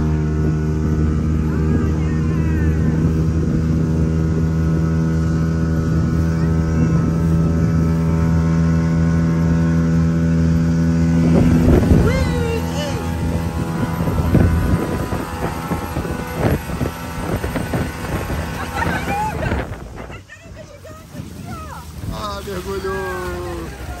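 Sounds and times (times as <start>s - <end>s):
outboard motor running: 0.0s - 24.0s.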